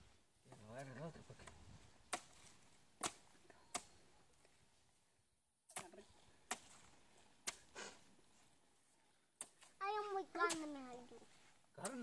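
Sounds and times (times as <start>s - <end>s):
machete chopping coconut: 2.1s - 2.4s, 3.0s - 4.0s, 5.7s - 6.8s.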